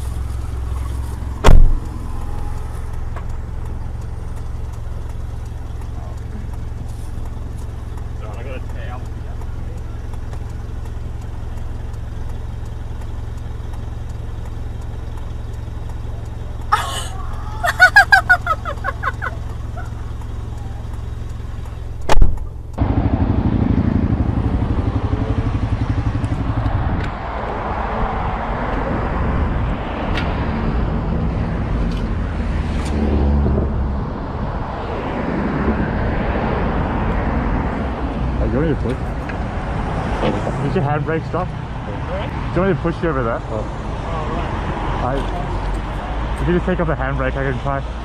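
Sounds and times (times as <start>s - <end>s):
car engine idling: 0.0s - 26.9s
motorcycle engine running: 0.0s - 27.1s.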